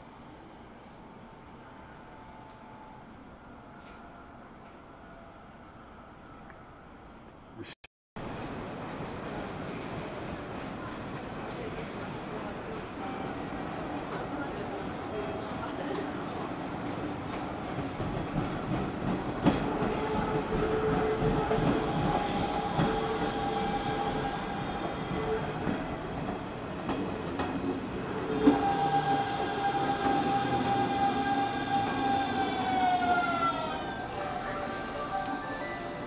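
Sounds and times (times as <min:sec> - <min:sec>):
electric train rumbling on rails: 0:00.0 - 0:07.5, 0:08.2 - 0:36.0.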